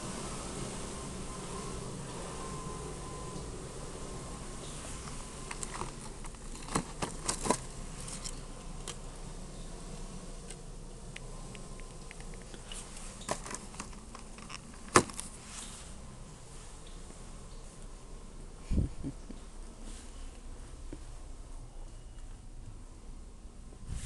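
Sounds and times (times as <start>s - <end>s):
store background noise: 4.6s - 8.4s.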